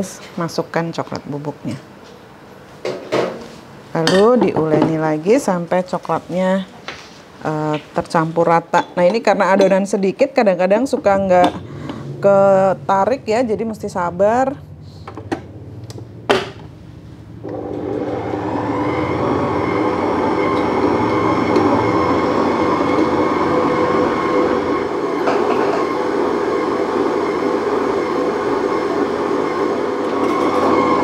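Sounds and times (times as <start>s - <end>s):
stand mixer motor humming: 17.4s - 31.0s.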